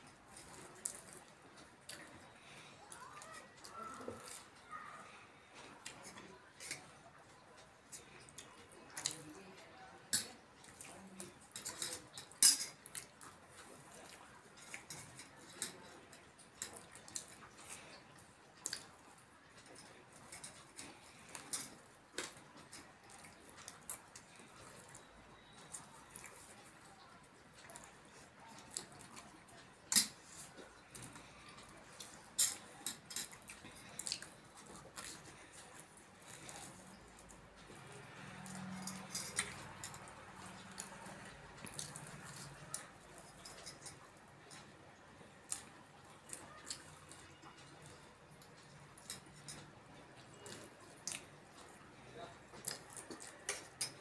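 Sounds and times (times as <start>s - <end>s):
steel spoons clinking on bowls: 11.4s - 13.0s, 14.6s - 17.4s, 32.0s - 34.1s, 38.3s - 41.0s, 53.5s - 54.0s.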